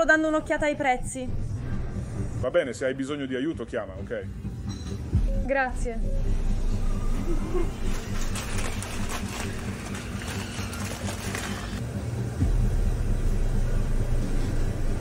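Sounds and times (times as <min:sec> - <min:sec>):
steady low hum: 0:00.0 - 0:10.3, 0:11.0 - 0:15.0
low rumble: 0:11.8 - 0:15.0.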